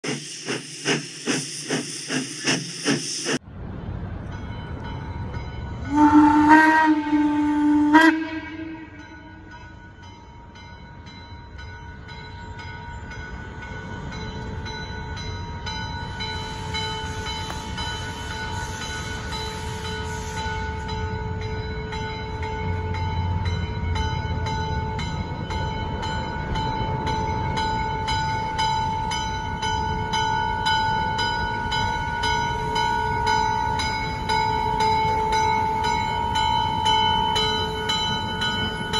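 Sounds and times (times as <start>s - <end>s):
steam hissing: 0.0s - 3.4s, 16.1s - 21.1s
steam train approaching: 0.0s - 38.9s
locomotive bell ringing: 4.3s - 7.4s, 8.0s - 38.9s
steam whistle blast: 5.9s - 9.1s.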